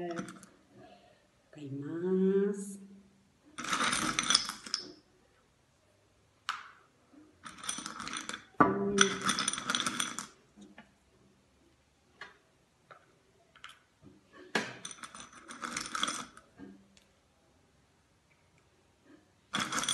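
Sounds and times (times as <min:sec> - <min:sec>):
pebbles clattering together: 0:03.6 - 0:05.0, 0:07.4 - 0:10.4, 0:14.8 - 0:16.5, 0:19.5 - 0:19.9.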